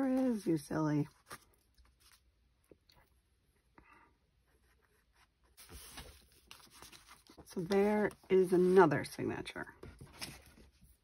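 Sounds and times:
paper sliding and smoothed: 4.8s - 9.0s.

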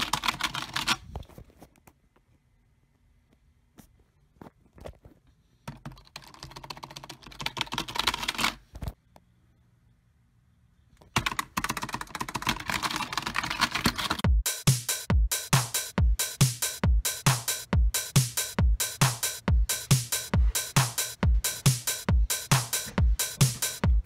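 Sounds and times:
keyboard typing: 0.0s - 1.0s, 5.7s - 8.6s, 11.0s - 14.3s
trap beat with heavy kicks: 14.3s - 24.0s.

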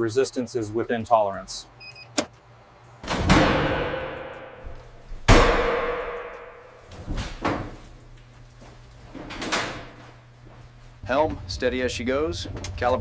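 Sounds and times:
loud metallic clangs ringing: 3.2s - 6.9s.

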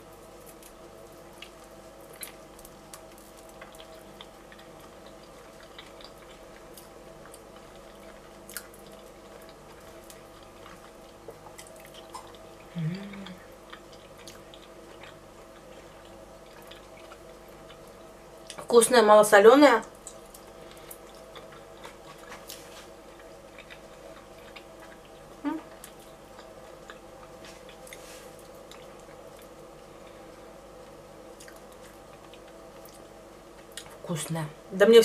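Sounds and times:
steady low hum: 0.0s - 35.0s
quiet chewing: 0.1s - 18.7s, 19.8s - 34.0s
person humming mm: 12.7s - 13.4s, 25.4s - 25.7s.

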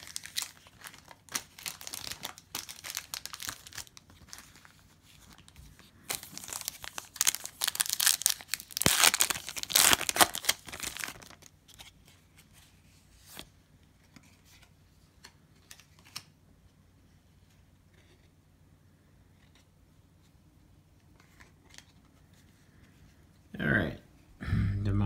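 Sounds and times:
wrapper tearing and crinkling: 0.0s - 11.5s.

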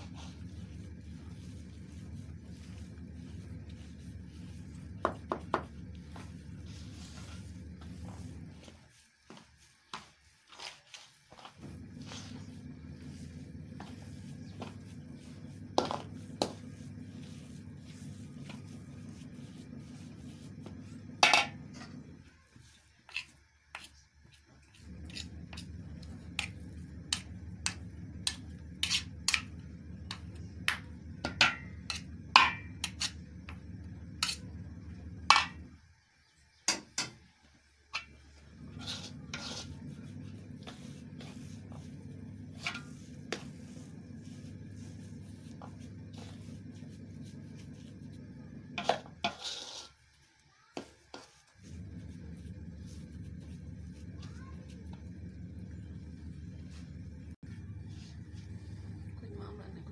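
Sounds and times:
low hum: 0.0s - 8.8s, 11.6s - 22.4s, 24.7s - 35.8s, 38.1s - 49.4s, 51.6s - 59.9s
metal spoon scraping steel tray: 38.8s - 39.7s, 48.8s - 50.0s.

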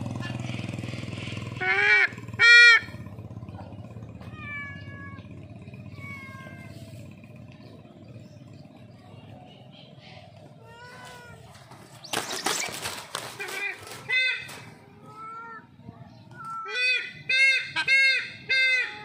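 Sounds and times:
bird of prey calling: 4.4s - 7.1s, 9.5s - 19.0s.

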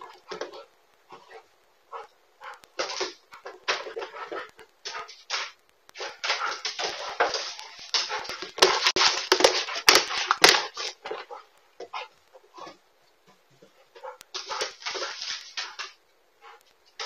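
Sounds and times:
paws and ball knocking: 2.8s - 12.0s
dog claws scrabbling on wood floor: 2.8s - 12.8s, 14.0s - 16.0s.

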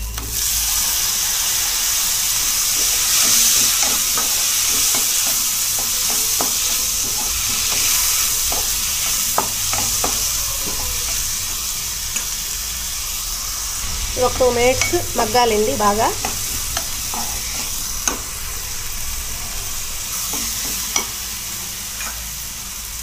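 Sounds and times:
vegetables sizzling in hot oil: 0.0s - 23.0s
spatula scraping and tapping pan: 3.1s - 12.4s, 14.4s - 18.3s, 20.2s - 21.2s.

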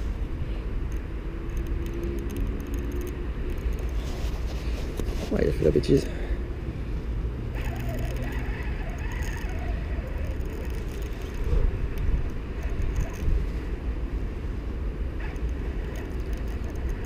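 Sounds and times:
wind buffeting the microphone: 8.8s - 14.1s.

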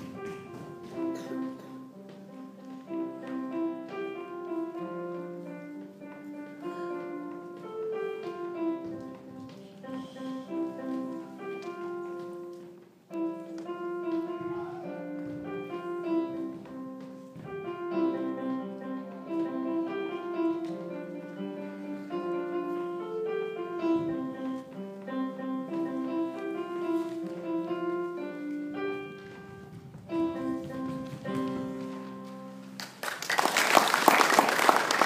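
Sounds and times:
solo piano piece: 0.0s - 35.0s
audience applauding: 32.8s - 35.0s.

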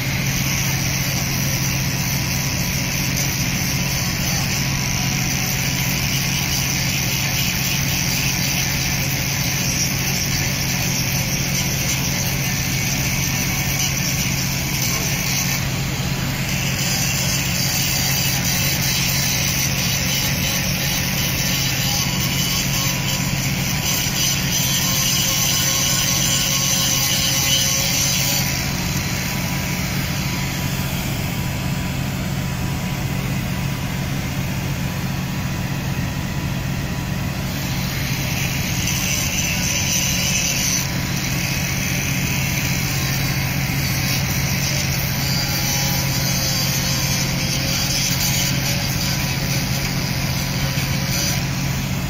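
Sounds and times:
ferry diesel engines droning: 0.1s - 52.0s.

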